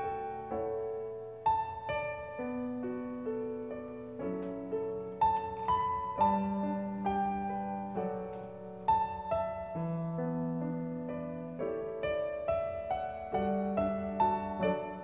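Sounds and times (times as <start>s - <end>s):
slow solo piano: 0.0s - 15.0s.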